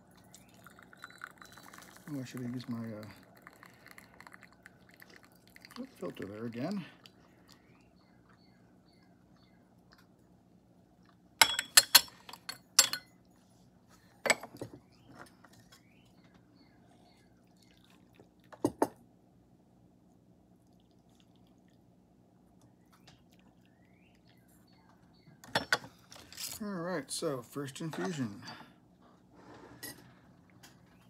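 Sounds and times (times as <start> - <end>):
teaware clinking: 11.4 - 13.2.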